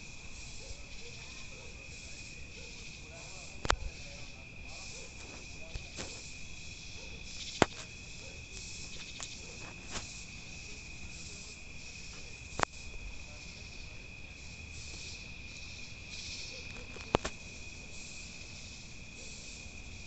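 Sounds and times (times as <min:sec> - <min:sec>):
crickets chirping: 0:00.0 - 0:20.0.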